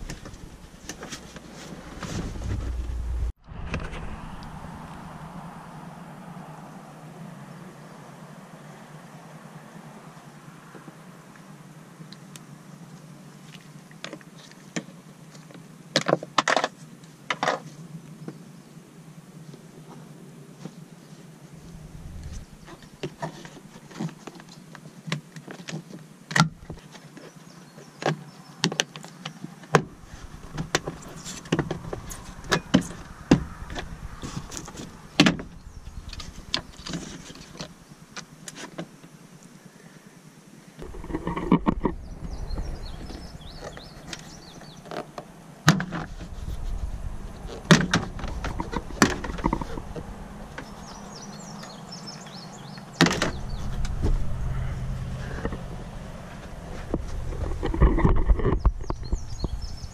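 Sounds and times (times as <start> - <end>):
plastic rubbing and creaking: 40.8 - 50.8, 56.4 - 59.9.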